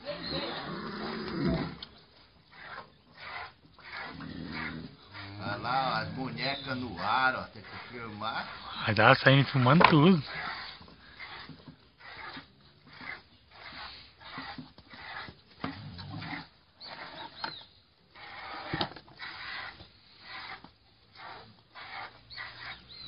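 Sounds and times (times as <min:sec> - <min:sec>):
piglet sucking noises: 0:01.7 - 0:06.7, 0:10.2 - 0:17.5, 0:18.1 - 0:23.0.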